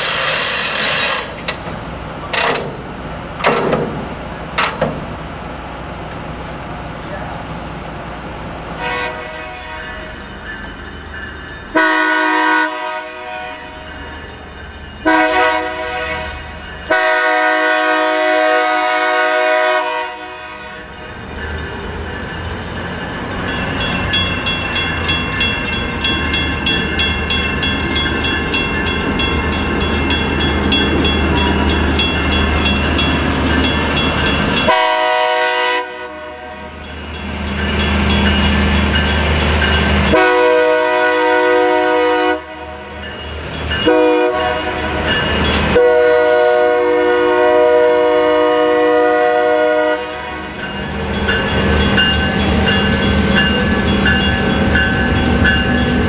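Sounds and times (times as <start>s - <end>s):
crossing warning bell: 0.0s - 56.0s
locomotive engine rumble: 0.0s - 56.0s
locomotive air horn blasts: 8.8s - 10.0s, 11.7s - 13.8s, 15.0s - 21.0s, 34.6s - 36.7s, 40.1s - 42.9s, 43.8s - 45.0s, 45.7s - 50.6s.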